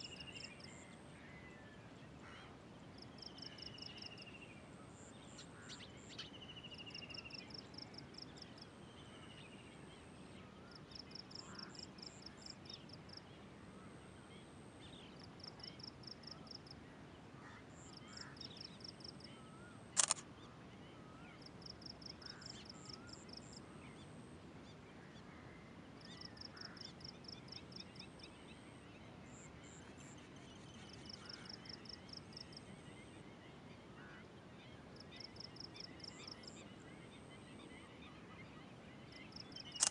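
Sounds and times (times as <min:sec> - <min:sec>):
faint bird chirps: 0:00.0 - 0:39.9
sharp click: 0:20.0 - 0:20.2.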